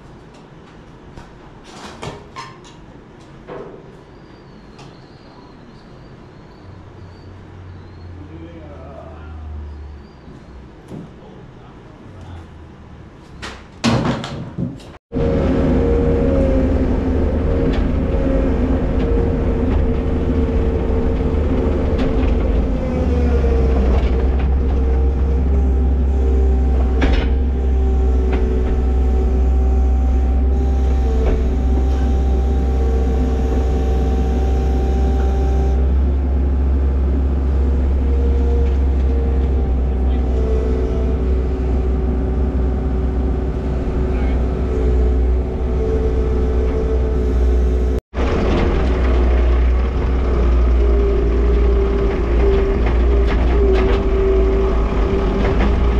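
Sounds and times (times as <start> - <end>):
loader engine running: 15.1 - 55.9.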